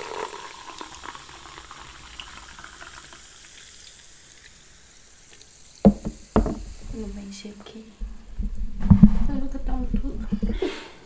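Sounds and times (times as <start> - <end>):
soda pouring into glasses: 0.0 - 7.2
fizzing bubbles hiss: 0.0 - 10.8.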